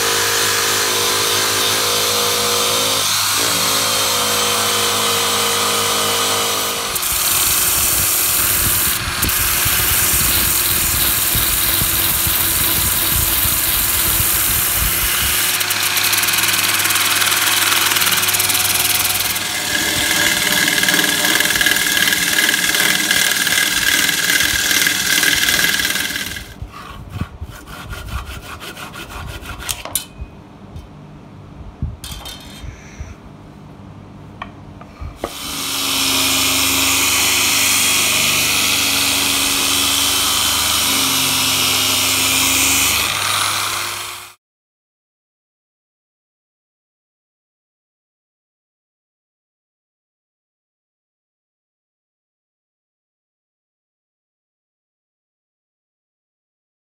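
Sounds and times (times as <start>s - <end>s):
electric drill sanding wood: 0.0s - 26.6s, 35.2s - 44.4s
power sanding disc on wood: 7.0s - 26.6s.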